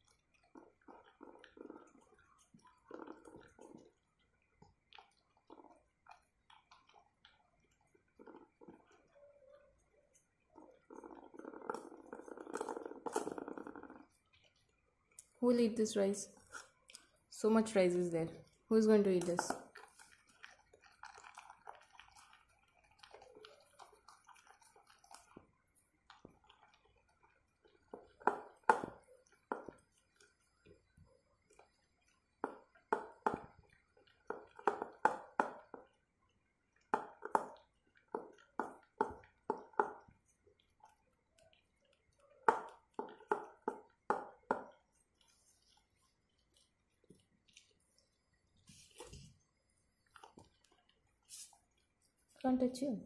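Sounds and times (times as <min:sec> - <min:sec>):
dog chewing and smacking: 0:00.0 - 0:15.4, 0:19.5 - 0:52.4.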